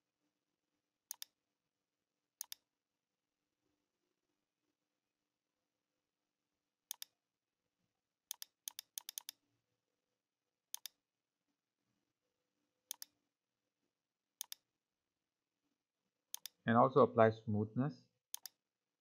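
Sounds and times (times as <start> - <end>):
computer mouse button clicking: 1.1 - 1.3, 2.4 - 2.6, 6.9 - 7.1, 8.3 - 9.4, 10.8 - 11.0, 12.9 - 13.1, 14.4 - 14.6, 16.3 - 16.6, 18.3 - 18.6.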